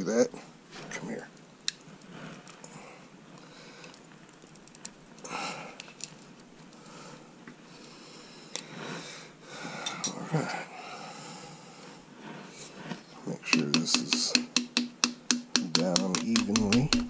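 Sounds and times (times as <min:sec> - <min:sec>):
hands rustling: 0:00.6 - 0:09.0.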